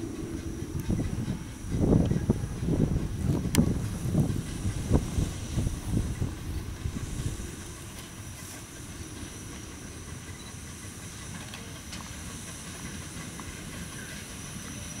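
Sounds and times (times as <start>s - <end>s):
low rumble of engine and wagons: 0.0s - 15.0s
steady hiss of steam: 0.0s - 15.0s
steam locomotive exhaust chuffs: 0.0s - 15.0s.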